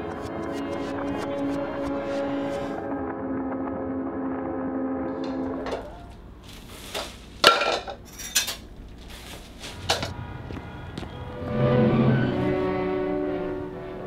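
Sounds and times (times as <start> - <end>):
background music: 0.0 - 6.1, 11.3 - 14.0
dishes and cutlery clattering: 7.4 - 8.7.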